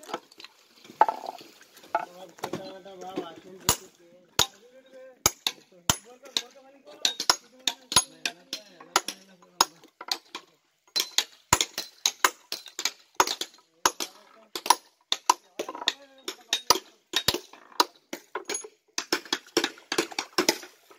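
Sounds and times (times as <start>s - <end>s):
hammer clinking on stone: 5.2s - 17.5s, 18.2s - 19.2s.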